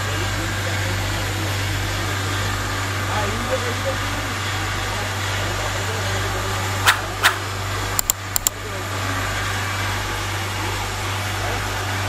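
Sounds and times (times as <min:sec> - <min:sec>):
sharp clicks: 0:06.9 - 0:08.6.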